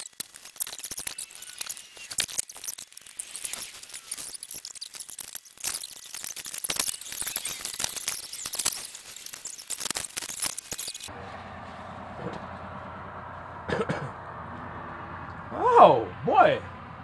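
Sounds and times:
plastic and metal parts rattling: 0:00.0 - 0:11.1
steady engine hum: 0:11.1 - 0:17.0.

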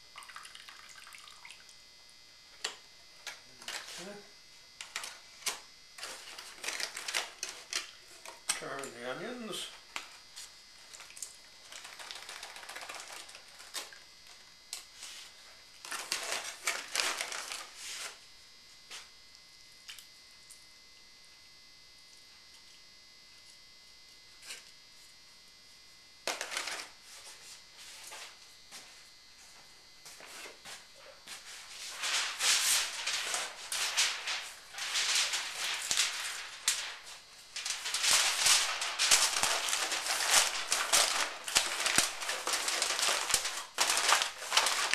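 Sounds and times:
aluminium foil crinkling: 0:03.2 - 0:04.2, 0:04.8 - 0:18.2, 0:26.3 - 0:27.4, 0:31.4 - 0:44.9.

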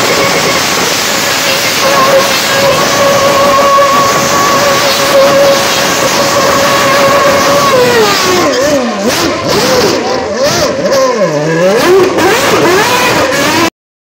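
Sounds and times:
racing car engine revving: 0:00.0 - 0:13.7.

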